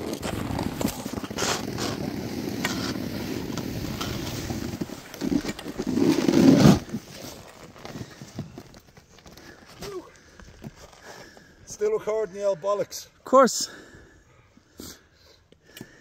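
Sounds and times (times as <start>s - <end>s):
skis scraping on packed snow: 0.0s - 9.7s.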